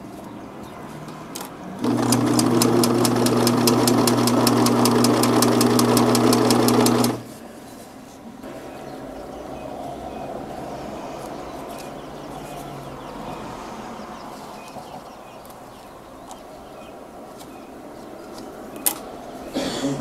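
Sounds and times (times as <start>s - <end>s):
sewing machine motor hum: 1.8s - 7.3s.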